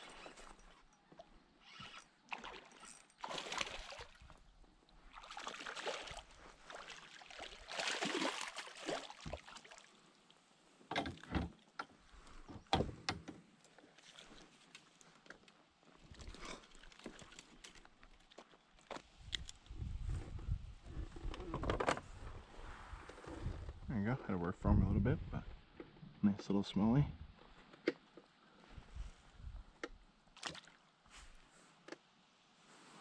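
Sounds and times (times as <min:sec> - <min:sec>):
fish splashing in water: 0:02.3 - 0:04.3, 0:05.1 - 0:09.9.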